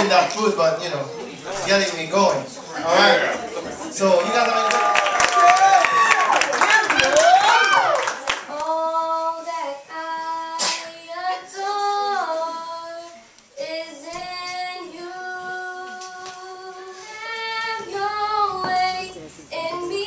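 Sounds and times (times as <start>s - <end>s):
girl singing into microphone: 8.5s - 20.0s.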